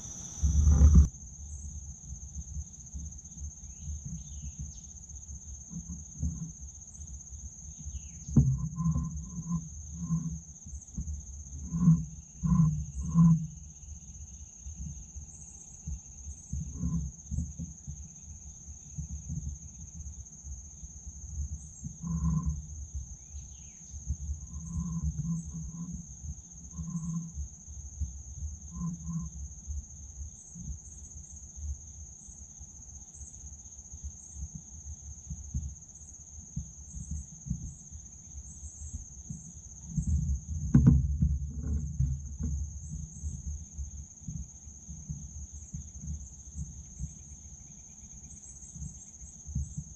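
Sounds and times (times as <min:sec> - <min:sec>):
insects shrilling: 0:00.0 - 0:01.1
low thumps and rumbles: 0:00.0 - 0:01.1, 0:40.0 - 0:43.4.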